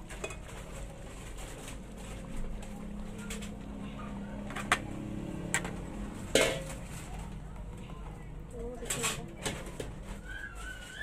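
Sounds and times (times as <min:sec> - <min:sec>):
colander knocking on pot: 0:05.5 - 0:06.8.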